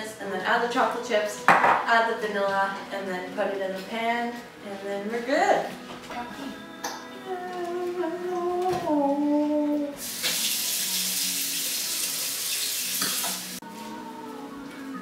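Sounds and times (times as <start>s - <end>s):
faucet water running: 10.0s - 13.6s.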